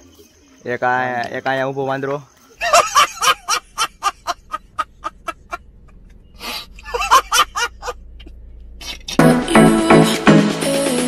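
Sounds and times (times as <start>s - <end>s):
man laughing hysterically: 2.6s - 5.6s, 6.4s - 8.0s.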